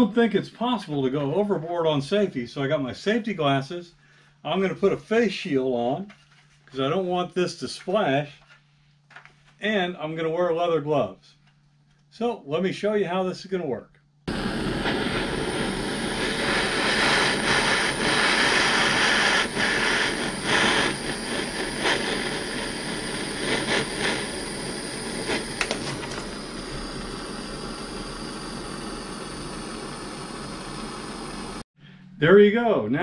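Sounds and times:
sharp crackles: 14.3s - 31.6s
hand torch hissing roar: 14.3s - 31.7s.

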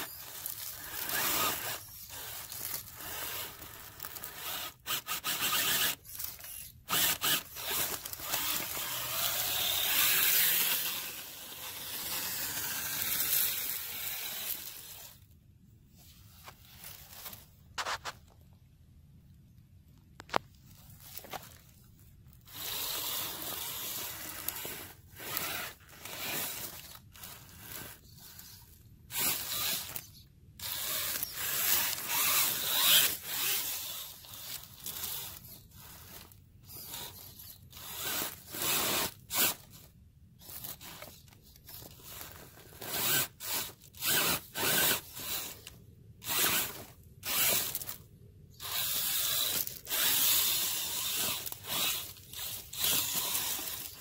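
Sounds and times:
electric motor whirring: 0.0s - 15.2s, 30.6s - 36.2s, 48.6s - 54.0s
sticks and leaves scraping: 0.0s - 15.2s, 16.0s - 18.4s, 48.6s - 54.0s.

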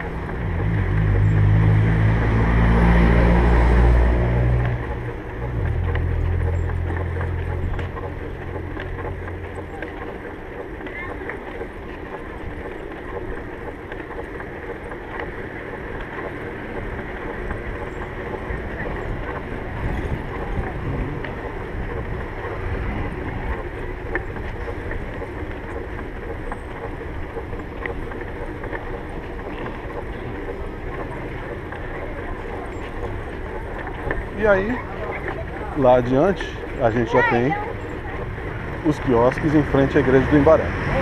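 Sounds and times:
wind rumble on microphone: 18.6s - 23.8s.

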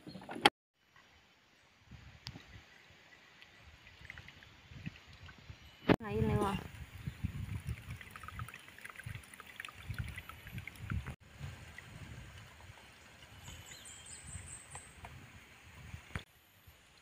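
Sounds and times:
liquid trickling through strainer: 7.0s - 12.5s.

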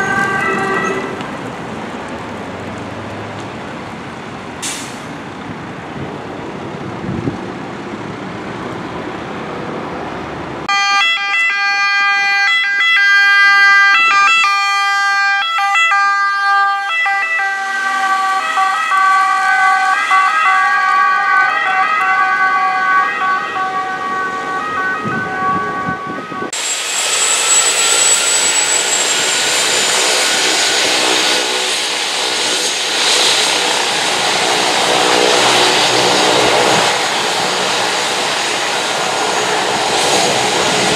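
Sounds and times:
two-tone ambulance siren: 0.0s - 1.2s, 10.7s - 26.6s
diesel engine and tyres: 0.0s - 10.7s
high turbine whine: 17.2s - 40.9s
helicopter rotor and turbines: 26.0s - 40.9s.

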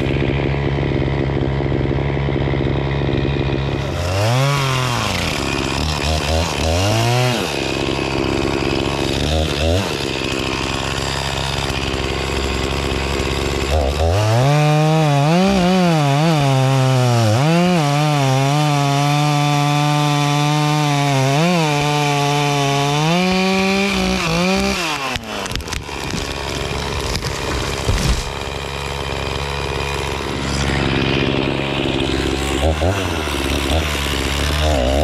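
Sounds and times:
chainsaw cutting tree trunk: 0.0s - 35.0s
wood cracking: 0.0s - 35.0s
tree crashing down: 22.9s - 30.4s.

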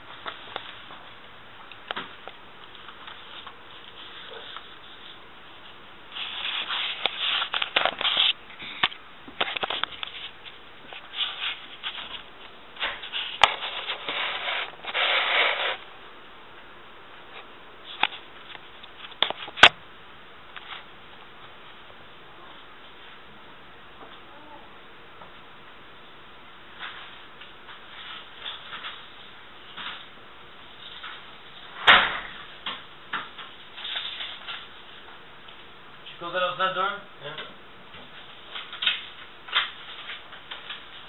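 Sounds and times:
camera handling rubbing and scraping: 6.2s - 8.4s.

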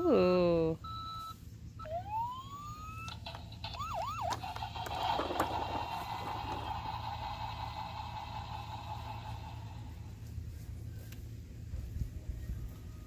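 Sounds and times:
toy fire truck siren: 1.8s - 6.8s.

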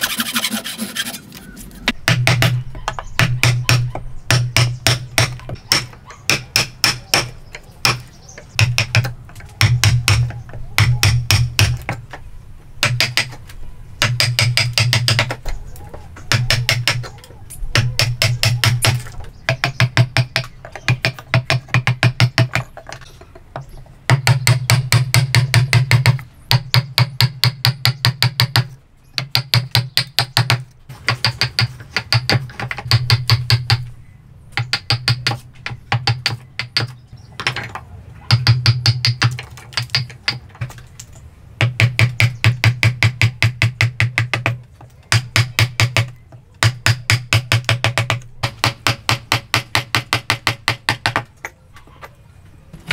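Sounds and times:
mallet striking a chisel into wood: 2.0s - 2.6s, 3.2s - 12.0s, 12.8s - 13.4s, 14.0s - 15.4s, 16.3s - 17.1s, 17.7s - 22.7s, 24.1s - 33.8s, 34.6s - 37.6s, 38.3s - 40.4s, 41.6s - 51.3s.

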